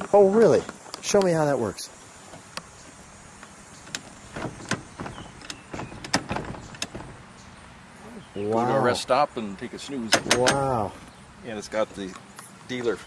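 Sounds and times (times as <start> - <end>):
car seat mechanism clunks: 3.4 - 7.4, 10.1 - 11.2.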